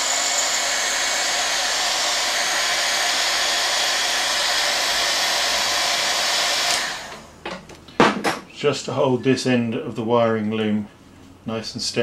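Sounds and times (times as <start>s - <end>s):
heat gun blowing: 0.0s - 7.4s.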